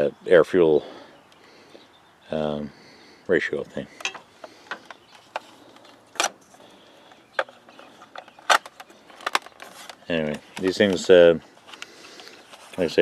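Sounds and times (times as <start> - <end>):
plastic device handling clicks: 7.1 - 11.0.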